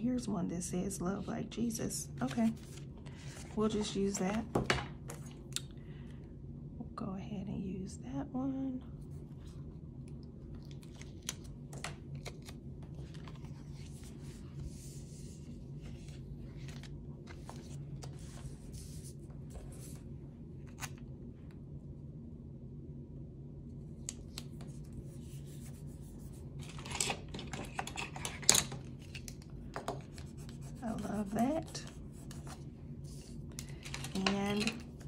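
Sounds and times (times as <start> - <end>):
steady low hum: 0.0 - 35.0
paper crinkling: 10.5 - 20.0
paper stickers rustling: 26.6 - 35.0.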